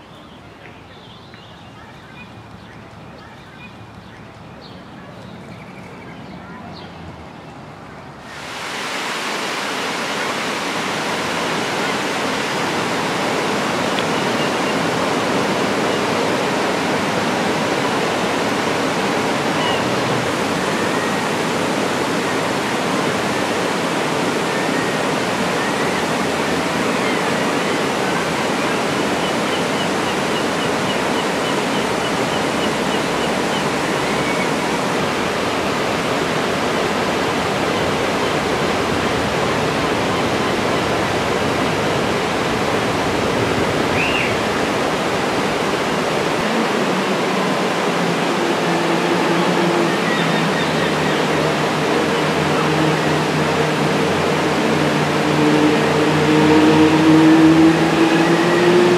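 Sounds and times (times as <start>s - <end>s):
water rushing over dam spillway: 7.7s - 58.9s
faint high bird calls: 19.4s - 20.1s, 43.9s - 44.4s.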